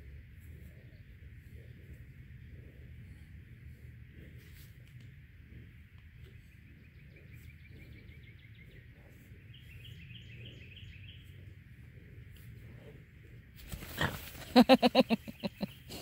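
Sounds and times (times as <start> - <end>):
low steady rumble: 0.0 - 15.9
birds singing: 6.2 - 12.2, 13.8 - 16.0.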